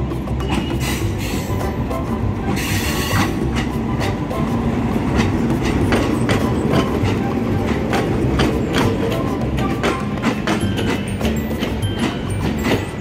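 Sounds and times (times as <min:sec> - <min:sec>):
diesel train passing: 0:00.0 - 0:13.0
wheels clacking over rail joints: 0:00.0 - 0:13.0.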